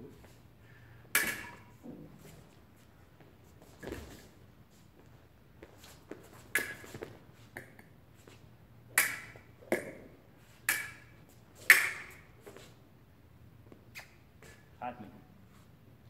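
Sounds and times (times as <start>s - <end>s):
fencing blades clashing: 1.0s - 1.8s, 6.1s - 8.0s, 8.9s - 12.7s.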